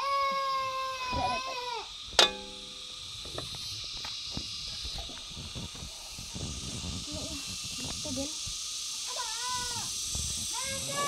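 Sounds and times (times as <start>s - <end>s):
insects hissing: 0.0s - 11.0s
metal lid clanking on pan: 2.2s - 2.8s.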